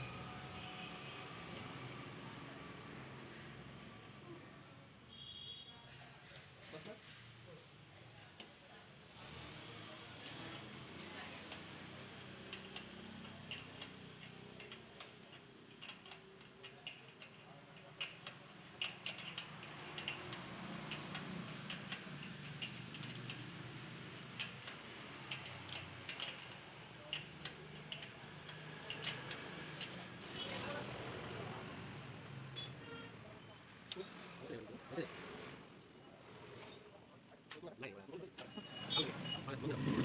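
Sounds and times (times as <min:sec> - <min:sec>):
metallic clicks of hand tools: 0:24.4 - 0:29.9.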